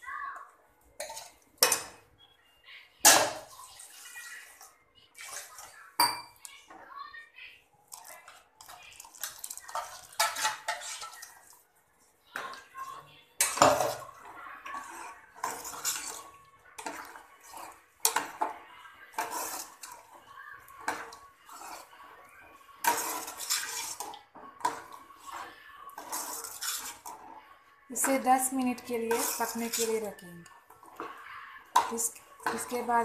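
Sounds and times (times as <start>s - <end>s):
ladle scraping a metal pot: 1.0s - 1.9s, 8.0s - 11.6s, 13.4s - 18.5s, 19.1s - 20.2s, 20.8s - 27.4s, 28.0s - 32.9s.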